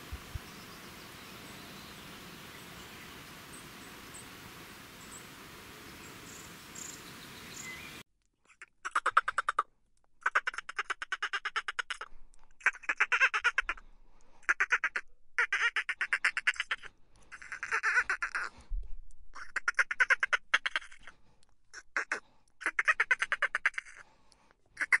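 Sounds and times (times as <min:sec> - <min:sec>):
dolphin clicking calls: 0:08.5 - 0:13.8.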